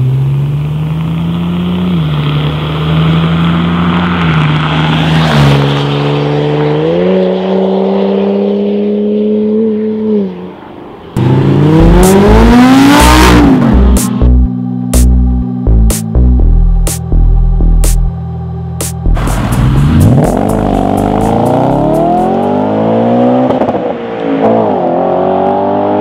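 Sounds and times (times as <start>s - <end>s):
car accelerating past: 0.6s - 13.9s, 19.2s - 26.0s
electronic music with rising sweep: 11.2s - 23.5s.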